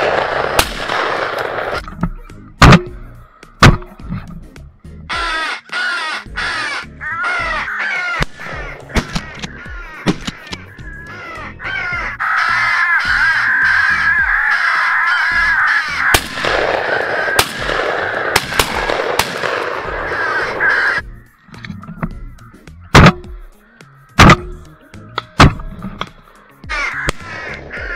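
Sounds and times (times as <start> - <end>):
crows cawing: 3.0 - 3.6, 5.1 - 21.4, 22.0 - 24.8, 26.1 - 27.9
sharp clicks: 8.2 - 10.7.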